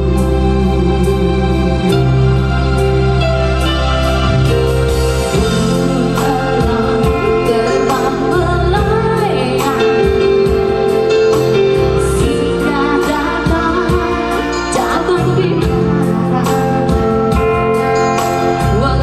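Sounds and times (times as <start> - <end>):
electronic keyboard chords: 0.0 - 19.0
woman singing into microphone: 5.3 - 19.0.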